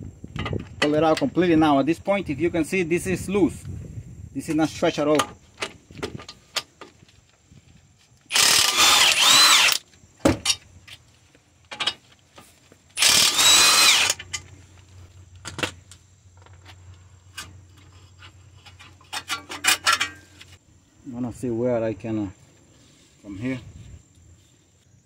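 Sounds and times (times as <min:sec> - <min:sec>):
tools clicking and knocking: 0:18.2 - 0:20.4.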